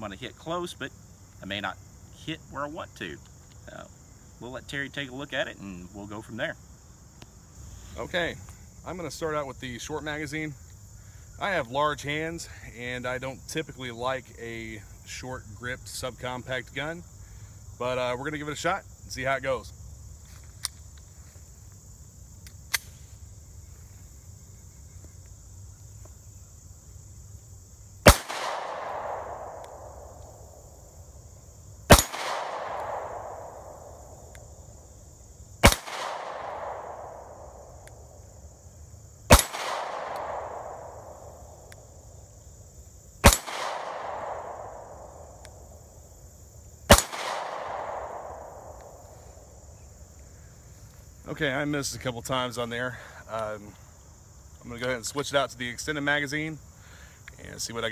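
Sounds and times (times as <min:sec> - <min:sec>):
crickets chirring: 0:00.0 - 0:57.9
sharp click: 0:22.4 - 0:23.0
pistol shots with echo: 0:28.1 - 0:30.1, 0:31.9 - 0:33.9, 0:35.6 - 0:37.6, 0:39.3 - 0:41.2, 0:43.2 - 0:45.3, 0:46.9 - 0:48.7.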